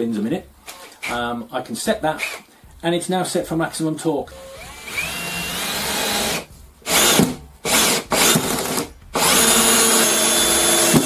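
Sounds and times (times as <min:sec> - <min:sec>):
power drill driving screw into wood: 0:04.4 - 0:11.0.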